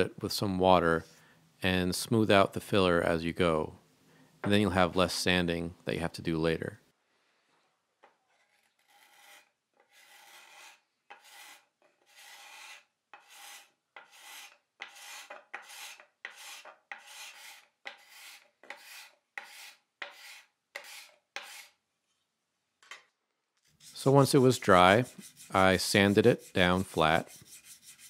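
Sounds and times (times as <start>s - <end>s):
sandpaper rubbing on wood: 8.8s - 21.7s, 23.8s - 28.0s.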